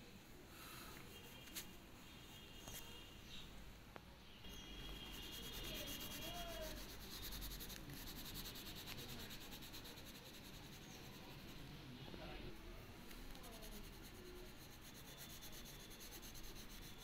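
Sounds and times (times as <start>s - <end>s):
crayon scratching on paper: 4.5s - 11.7s, 12.6s - 17.0s.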